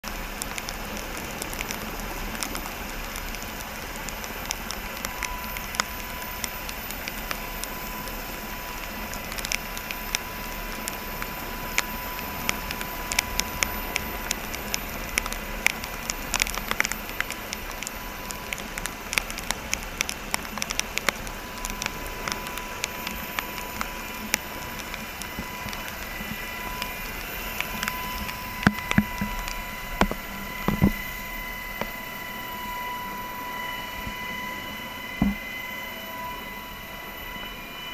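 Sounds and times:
crackles and clicks: 0.0s - 37.9s
faint steady whine: 0.0s - 37.9s.

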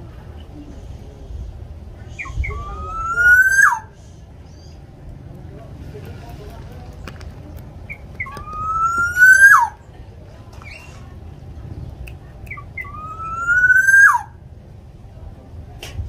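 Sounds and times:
bird calling: 2.1s - 4.9s, 7.8s - 9.8s, 12.5s - 14.4s.

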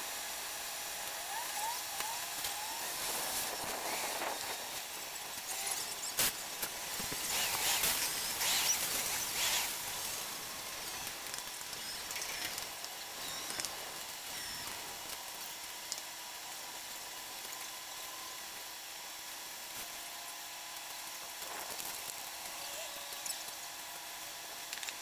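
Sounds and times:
scraping and rasping: 5.5s - 11.1s.

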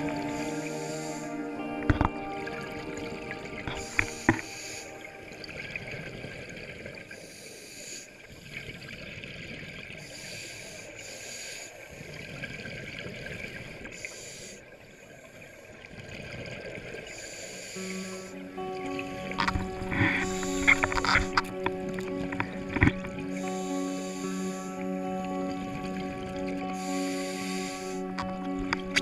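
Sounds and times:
diver breathing through regulator: 19.9s - 21.6s, 23.3s - 25.1s, 26.7s - 28.3s.

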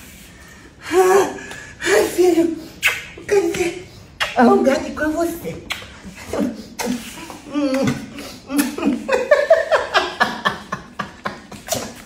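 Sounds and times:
person laughing: 7.5s - 12.0s.

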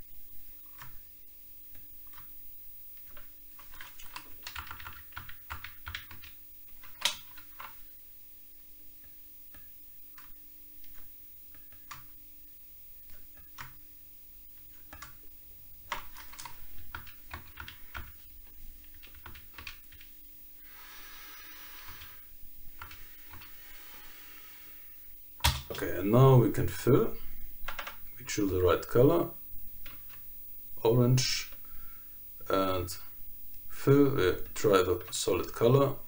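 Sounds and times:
keyboard clicking: 3.1s - 7.8s, 15.9s - 18.2s, 18.8s - 20.1s.

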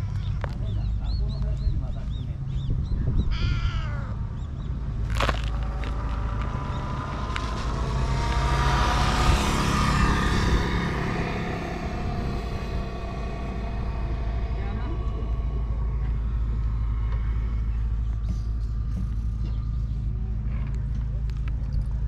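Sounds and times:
low outdoor rumble: 0.0s - 22.0s
engine passing: 4.0s - 22.0s.

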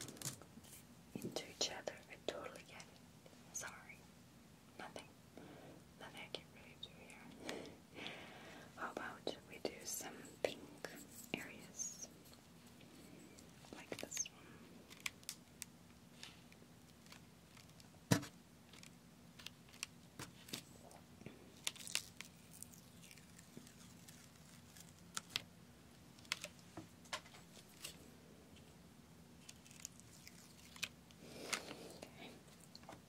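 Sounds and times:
soft rustle: 9.8s - 15.1s, 19.7s - 25.4s.

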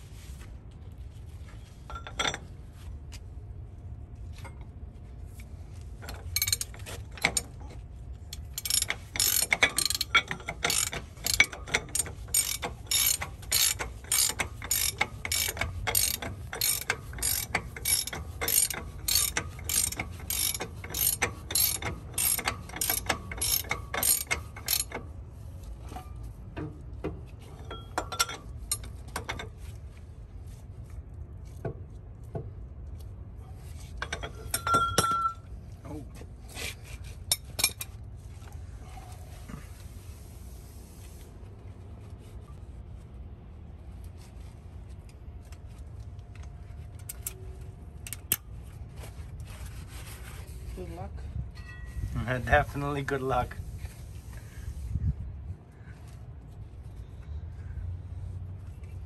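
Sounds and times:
ratchet wrench clicking: 6.0s - 7.6s, 8.3s - 25.0s, 48.0s - 48.4s.

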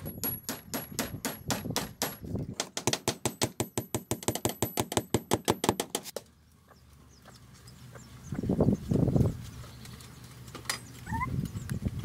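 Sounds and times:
hand tool knocking: 0.0s - 6.2s.

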